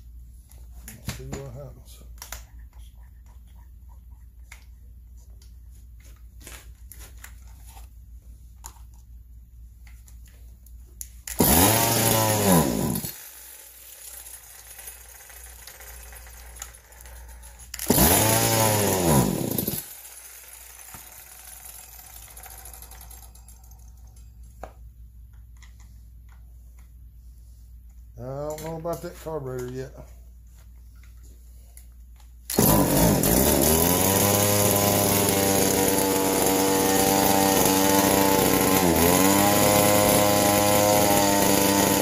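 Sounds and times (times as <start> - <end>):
chainsaw engine starting and revving: 11.3 - 16.5, 17.7 - 23.4, 32.5 - 42.0.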